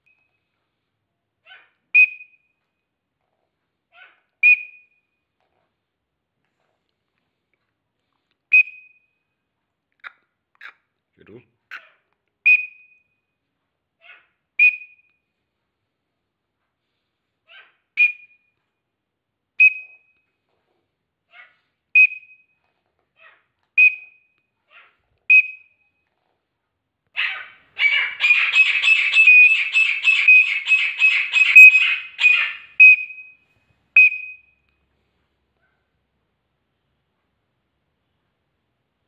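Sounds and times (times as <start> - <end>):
bird call whistle: 2.0 - 2.5, 4.4 - 5.0, 12.4 - 13.0, 14.6 - 15.1, 18.0 - 18.5, 25.3 - 25.7, 27.8 - 33.4, 34.0 - 34.6
francolin calling: 27.2 - 33.3.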